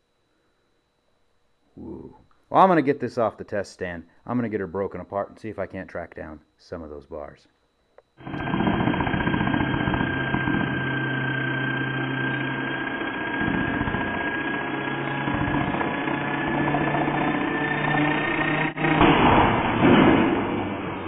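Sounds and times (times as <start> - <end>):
vacuum cleaner motor whining: 8.2 - 19.8.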